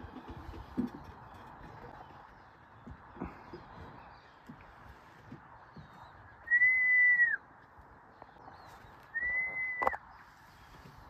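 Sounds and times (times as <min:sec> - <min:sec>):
whistled notes: 0:06.4 - 0:07.4, 0:09.1 - 0:10.0.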